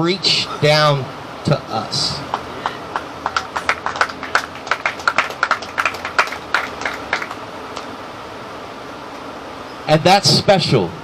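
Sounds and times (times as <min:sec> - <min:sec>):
people clapping: 0:02.3 - 0:07.9.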